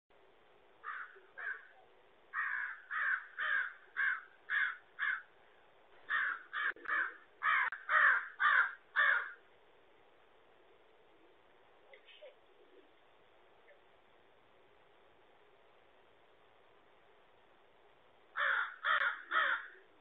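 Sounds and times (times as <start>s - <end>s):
crow cawing: 0.8s - 5.3s, 6.1s - 9.4s, 18.3s - 19.9s.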